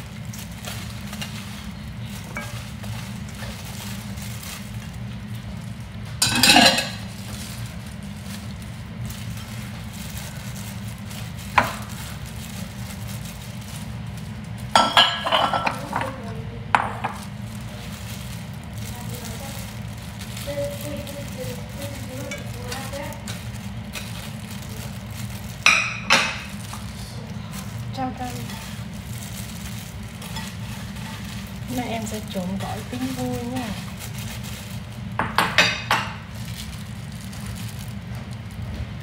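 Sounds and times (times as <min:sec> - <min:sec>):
steady low hum: 0:00.0 - 0:39.0
glass clinking against metal bowl: 0:06.2 - 0:07.0, 0:14.8 - 0:16.1.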